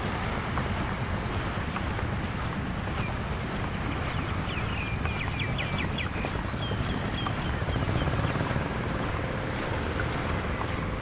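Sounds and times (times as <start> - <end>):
waves on the shore: 0.0 - 11.0
wind: 0.0 - 11.0
bird chirping: 1.2 - 8.7.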